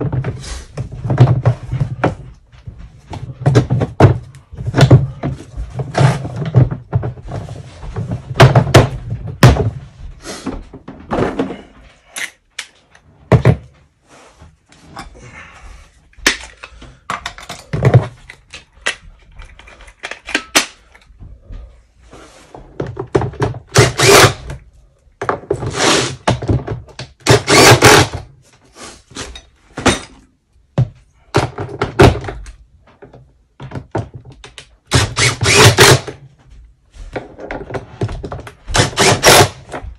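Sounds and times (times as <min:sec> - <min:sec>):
cordless drill running: 0:23.8 - 0:24.4, 0:27.4 - 0:28.1, 0:34.9 - 0:36.1, 0:38.8 - 0:39.6.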